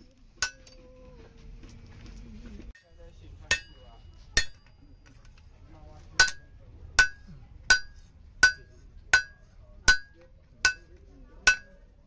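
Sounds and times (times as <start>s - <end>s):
hammer ringing on anvil: 3.5s - 4.8s, 6.2s - 10.9s, 11.5s - 11.8s.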